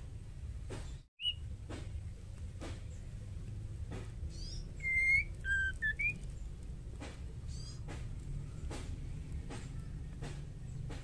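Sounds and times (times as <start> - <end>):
bird whistling and chirping: 1.2 - 1.5, 4.3 - 6.3.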